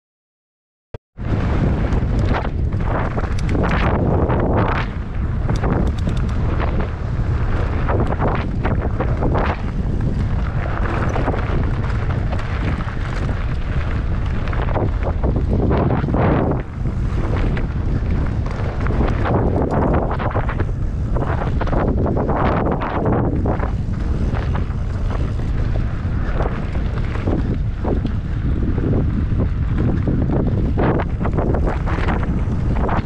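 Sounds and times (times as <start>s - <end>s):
wind buffeting microphone: 1.2s - 33.0s
sharp rattling clicks: 3.2s - 3.8s, 5.5s - 6.4s.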